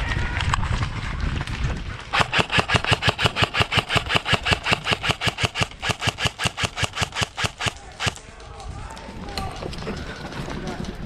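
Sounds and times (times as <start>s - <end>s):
airsoft gun firing rapidly: 2.1s - 8.2s.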